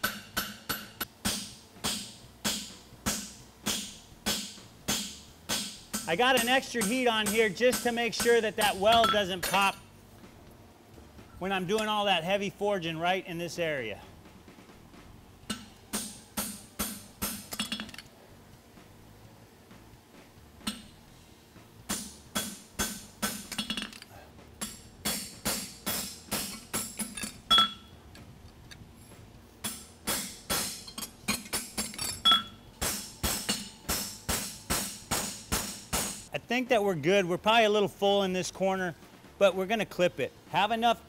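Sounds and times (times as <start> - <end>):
hammer striking metal on anvil: 0.0 - 9.8, 15.4 - 18.0, 21.9 - 24.0, 24.6 - 27.9, 29.6 - 36.3.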